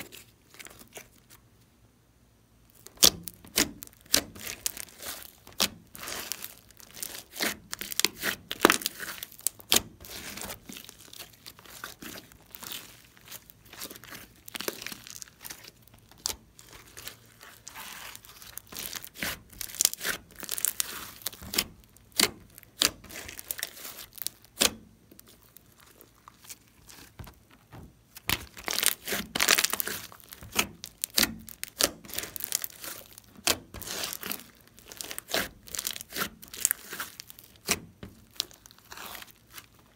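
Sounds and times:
slime clicking and popping: 0:28.2 - 0:38.8.

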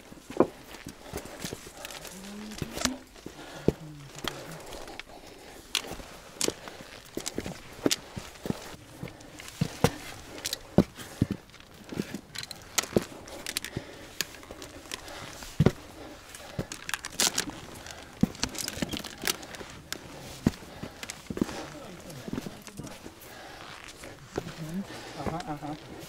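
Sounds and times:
clothing and gear rustling: 0:00.0 - 0:26.0
boots striking and scraping stone: 0:05.8 - 0:23.0.

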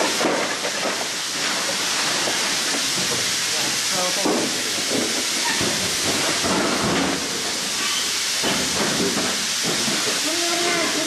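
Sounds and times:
steady loud hiss: 0:00.0 - 0:11.0.

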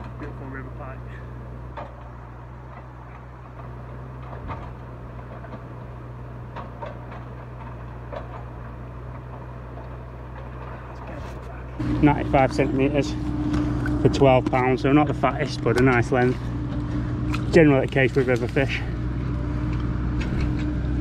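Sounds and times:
low mechanical hum: 0:00.0 - 0:21.0
faint clicks and knocks: 0:06.5 - 0:11.5.

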